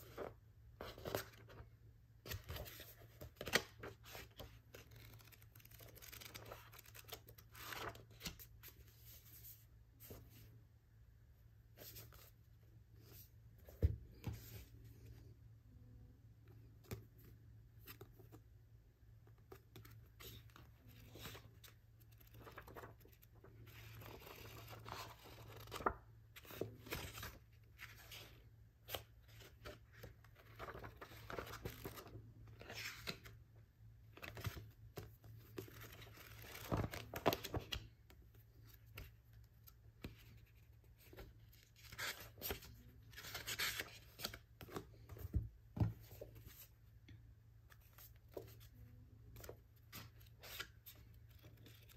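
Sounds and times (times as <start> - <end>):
paper pages rustling: 2.2 - 10.4, 19.5 - 28.3, 28.9 - 33.3, 35.5 - 37.9.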